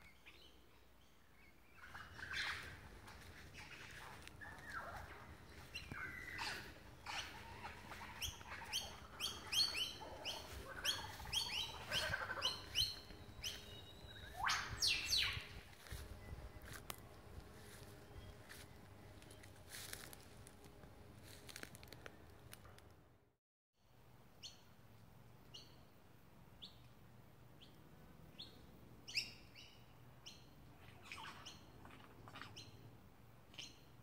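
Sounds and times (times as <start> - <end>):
lyrebird singing: 1.4 - 16.8.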